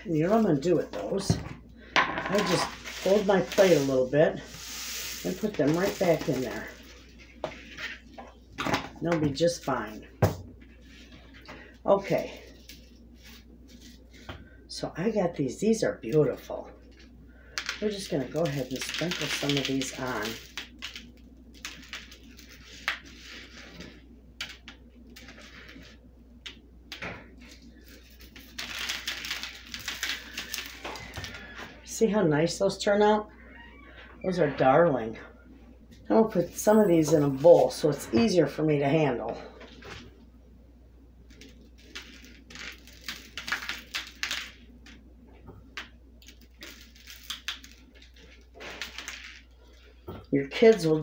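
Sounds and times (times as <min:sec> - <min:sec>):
sprinkles rustling and ticking: 0:02.3 - 0:08.2, 0:16.8 - 0:26.6, 0:27.4 - 0:31.6, 0:41.3 - 0:45.0, 0:45.7 - 0:50.0.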